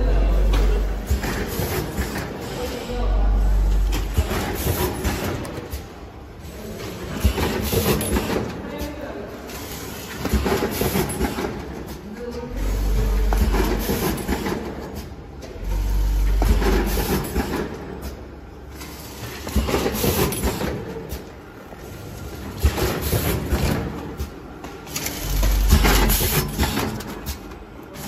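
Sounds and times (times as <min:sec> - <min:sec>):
packing machine humming: 0:00.0 - 0:08.6, 0:09.7 - 0:28.0
sharp mechanical clicks and knocks: 0:13.1 - 0:21.4, 0:22.5 - 0:28.0.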